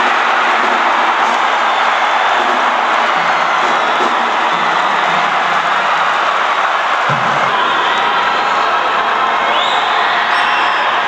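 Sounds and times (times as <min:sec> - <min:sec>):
crowd cheering and shouting: 0:00.0 - 0:11.0.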